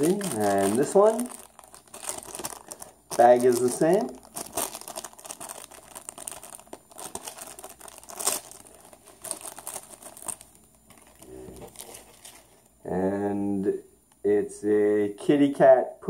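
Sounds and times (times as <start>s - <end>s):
plastic bag crinkling: 0.0s - 12.7s.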